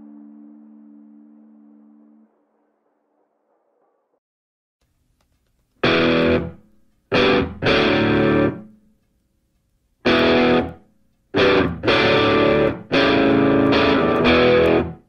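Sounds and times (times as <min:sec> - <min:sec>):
distorted electric guitar chords: 0:05.8 - 0:08.8, 0:10.0 - 0:15.0.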